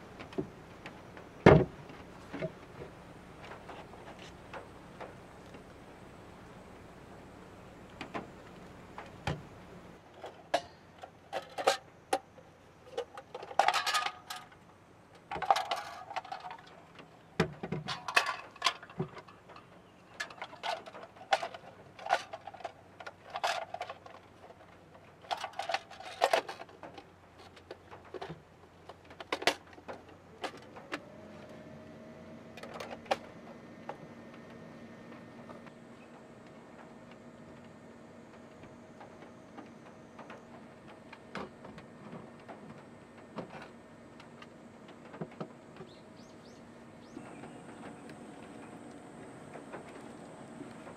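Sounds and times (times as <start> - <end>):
plastic parts clicking and clattering: 7.9 - 31.0, 32.6 - 34.0.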